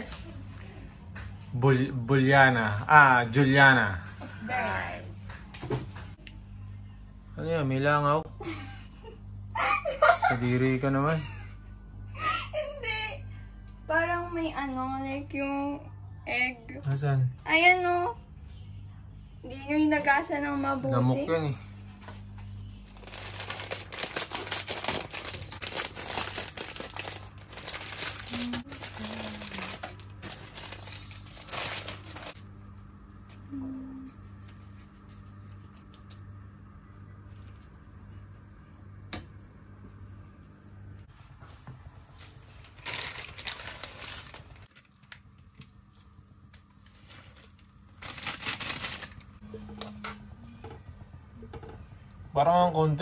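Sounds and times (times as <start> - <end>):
plastic wrapper crinkling: 22.8 - 32.4, 42.6 - 45.7, 47.1 - 49.4.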